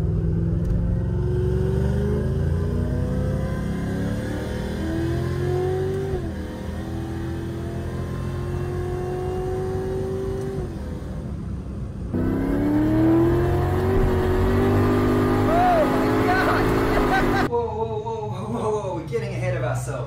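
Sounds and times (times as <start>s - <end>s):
car engine accelerating hard: 0.0s - 11.2s, 12.1s - 17.5s
man exclaiming: 15.3s - 19.2s.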